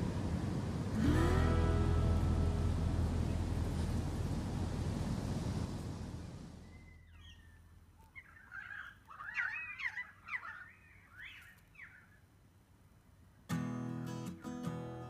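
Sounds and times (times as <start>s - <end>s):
acoustic guitar music: 0.8s - 5.5s, 13.5s - 15.0s
bird calls with swooping pitch: 6.6s - 12.2s.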